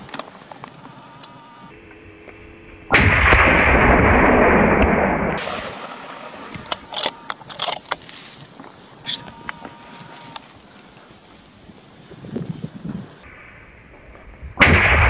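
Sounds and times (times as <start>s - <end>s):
loud gunshot: 2.9s - 7.3s, 14.6s - 15.0s.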